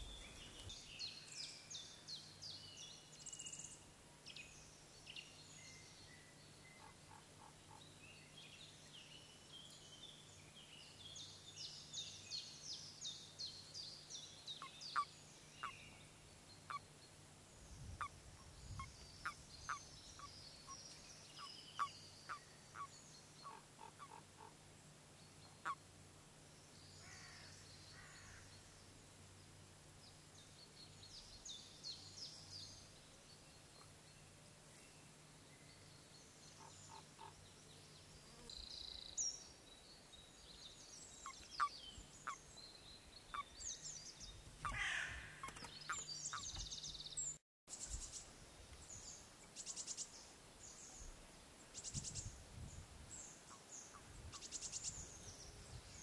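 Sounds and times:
birds chirping: 0.0s - 3.8s, 34.9s - 48.2s
faint low hum: 0.0s - 56.0s.

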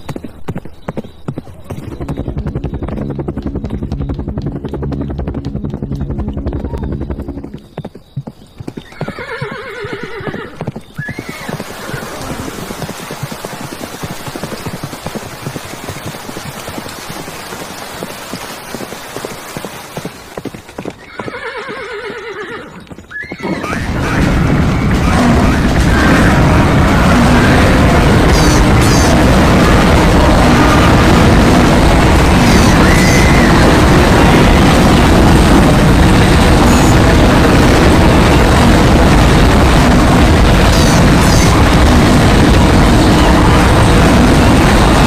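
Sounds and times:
galloping hoofbeats: 0.0s - 45.0s
loud low noisy sound: 2.2s - 7.6s, 23.8s - 45.0s
horse whinny: 8.8s - 12.2s, 21.0s - 24.2s.

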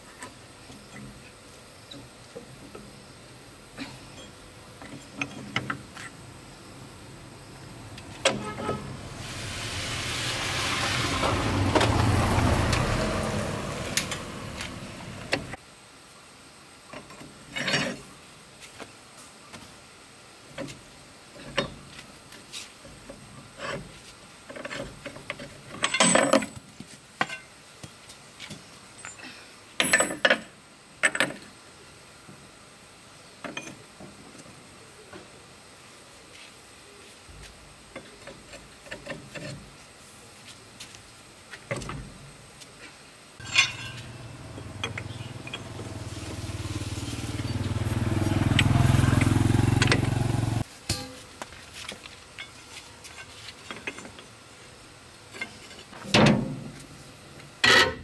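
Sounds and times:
wheel brace and lug nuts clanking: 23.6s - 27.5s, 43.4s - 46.6s, 47.3s - 51.3s.

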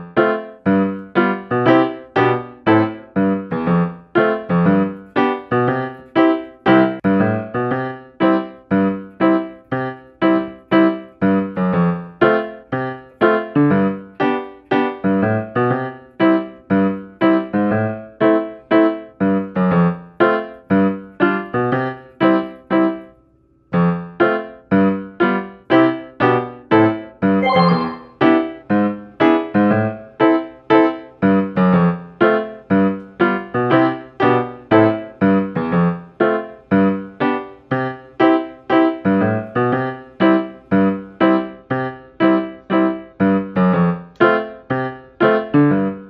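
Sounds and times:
piano music: 0.0s - 20.4s, 27.4s - 28.6s.

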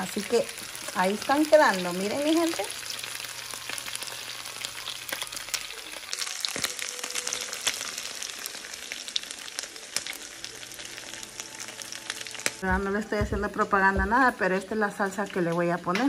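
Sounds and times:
chicken frying in a skillet: 0.0s - 12.7s.

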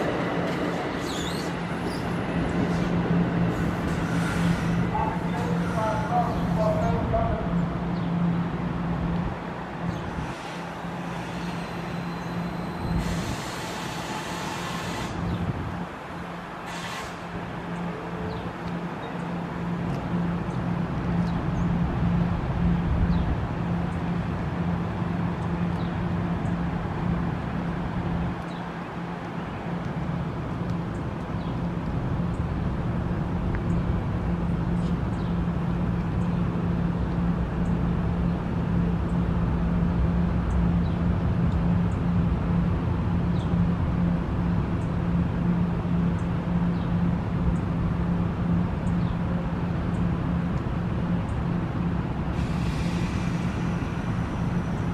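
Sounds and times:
passenger train stopping: 0.0s - 30.6s, 31.7s - 54.9s
train coaches low hum: 0.0s - 54.9s
air hissing: 52.4s - 54.2s.

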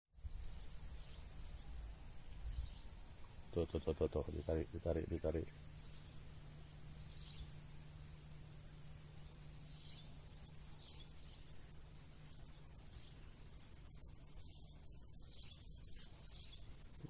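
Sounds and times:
faint bird chirps: 0.2s - 17.0s
high-pitched insect drone: 0.2s - 17.0s.

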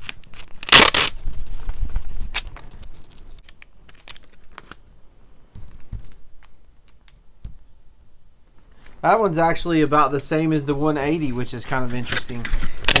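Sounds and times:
tape tearing rip: 0.0s - 2.8s, 12.8s - 13.0s
rustling: 0.0s - 4.8s
tape peeling: 0.0s - 4.8s.

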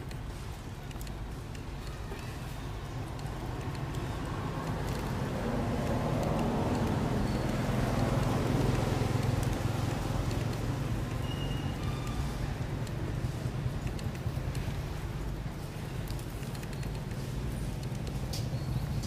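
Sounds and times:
low rushing outdoor noise: 0.0s - 19.0s
faint high chirps: 11.2s - 12.4s.

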